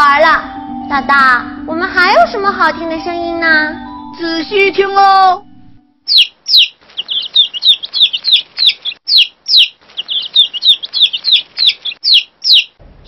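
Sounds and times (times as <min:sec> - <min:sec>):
baby chicks peeping: 0:06.1 - 0:12.8.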